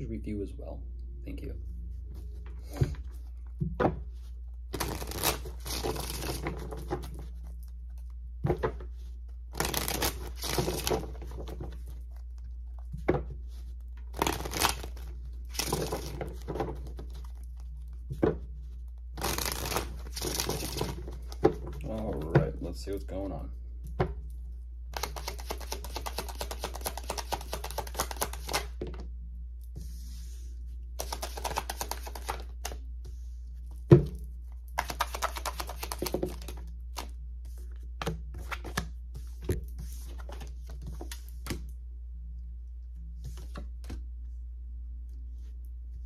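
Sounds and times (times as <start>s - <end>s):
cards being shuffled: 4.7s - 12.4s, 13.8s - 18.0s, 18.8s - 21.4s, 24.9s - 29.0s, 31.0s - 33.8s, 34.7s - 41.6s.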